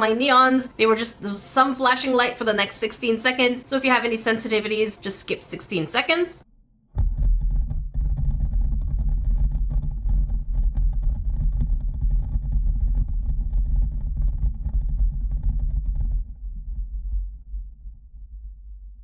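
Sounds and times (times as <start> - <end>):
deep steady rumble: 6.6 - 19.0.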